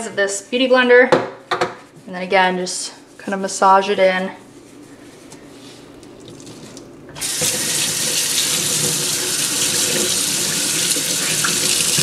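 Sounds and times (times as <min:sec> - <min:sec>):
tap water running into steel sink: 0:06.2 - 0:12.0.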